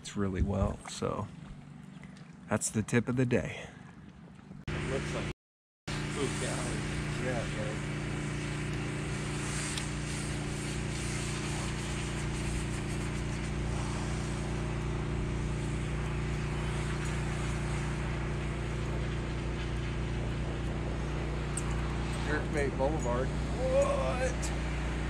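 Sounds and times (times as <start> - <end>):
boat motor humming: 0.0 - 5.3, 5.9 - 25.0
constant hiss: 5.9 - 25.0.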